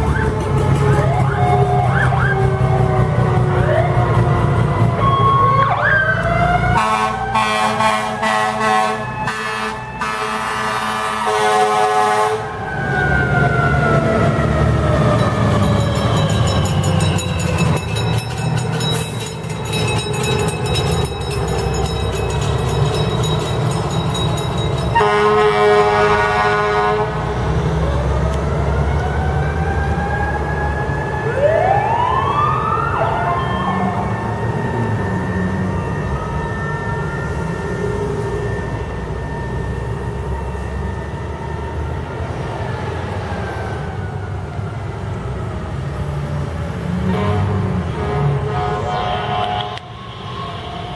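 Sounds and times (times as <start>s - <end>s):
sirens winding: 0.0s - 46.8s, 48.0s - 50.9s
fire engines running: 0.0s - 50.9s
air horn blast: 6.8s - 12.5s, 25.0s - 27.2s, 47.0s - 50.3s.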